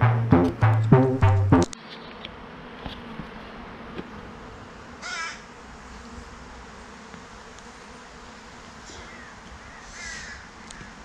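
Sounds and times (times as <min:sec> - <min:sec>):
honeybees humming: 0:00.0 - 0:11.0
harsh bird call: 0:05.0 - 0:05.5, 0:08.9 - 0:11.0.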